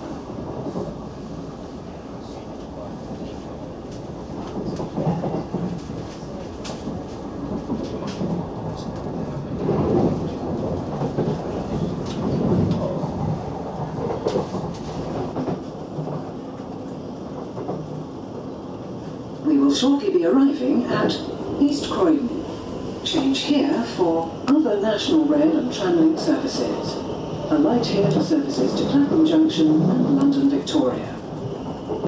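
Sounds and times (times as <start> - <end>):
train wheels rumbling on rail: 0.0 - 32.0.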